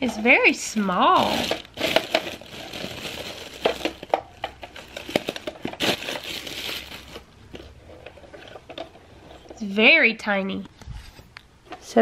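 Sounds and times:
plastic bag crinkling: 0:00.3 - 0:07.8.

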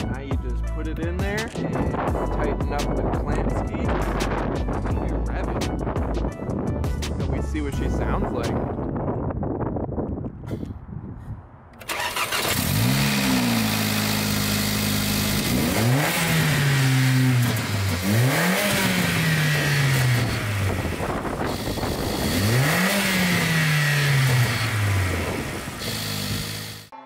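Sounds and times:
car engine revving: 0:11.8 - 0:26.9.

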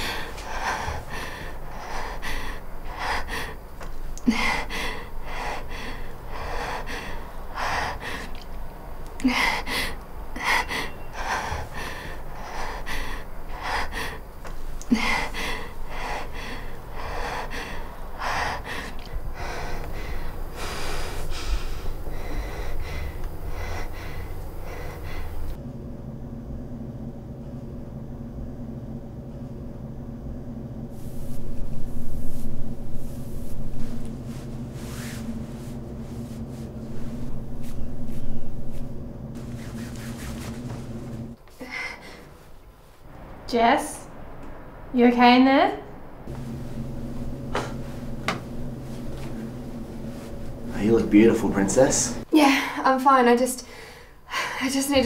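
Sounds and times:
woman breathing hard: 0:00.0 - 0:25.6, 0:39.4 - 0:42.5, 0:53.6 - 0:54.8
low steady hum: 0:00.0 - 0:55.0.

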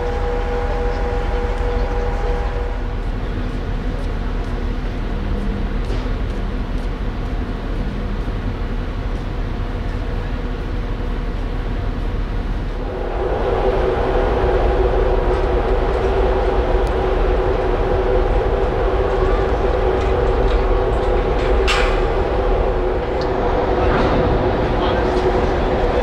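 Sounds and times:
ferry machinery humming: 0:00.0 - 0:26.0.

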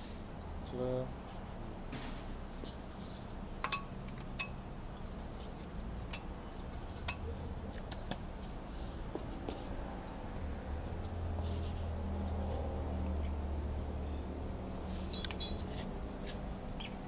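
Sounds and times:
steady low hum: 0:00.0 - 0:17.0
sharp metallic clinks: 0:15.1 - 0:15.7.

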